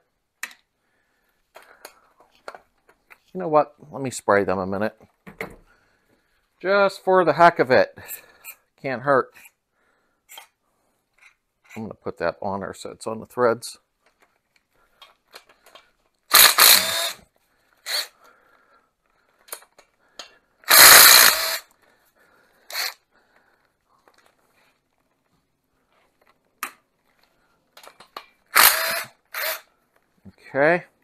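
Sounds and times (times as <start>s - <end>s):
cordless power tool bursts: 16.3s - 17.2s, 17.8s - 18.1s, 20.7s - 21.7s, 22.7s - 23.0s, 28.5s - 29.7s.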